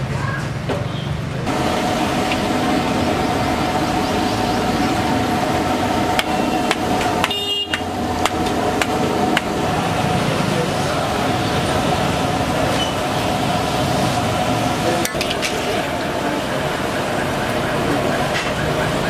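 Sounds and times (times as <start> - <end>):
steady hum: 1.4 - 19.0
oil sizzling as dough fries: 1.5 - 16.5.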